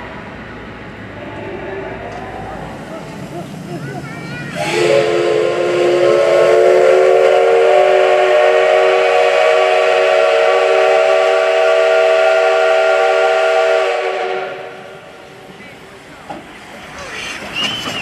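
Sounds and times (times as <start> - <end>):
steam hissing: 0.0 - 18.0
steam locomotive whistle chord: 4.6 - 15.2.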